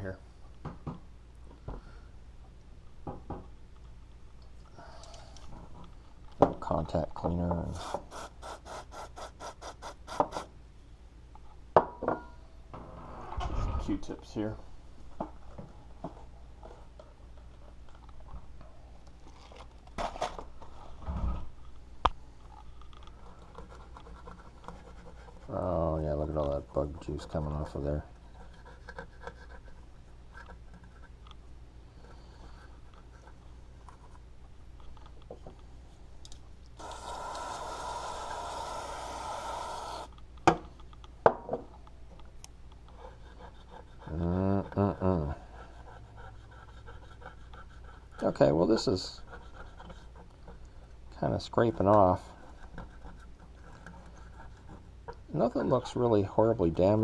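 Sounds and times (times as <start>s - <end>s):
cotton swabs scratching circuit board: 23.3s - 25.6s, 45.6s - 50.6s.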